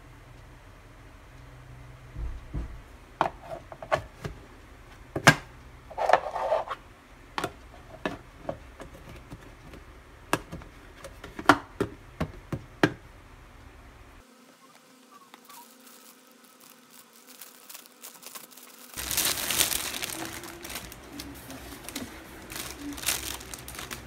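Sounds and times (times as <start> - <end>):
scraping rustle: 14.8 - 24.0.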